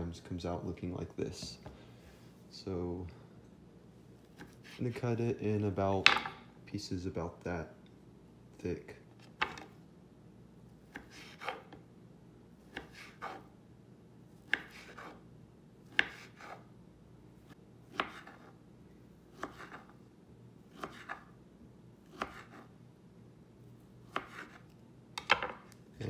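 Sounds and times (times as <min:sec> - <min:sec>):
knife slicing on wooden board: 0:10.9 - 0:11.8, 0:12.7 - 0:13.5, 0:14.5 - 0:15.2, 0:15.9 - 0:16.6, 0:17.9 - 0:18.6, 0:19.3 - 0:20.0, 0:20.7 - 0:21.3, 0:22.0 - 0:22.7, 0:24.1 - 0:24.8.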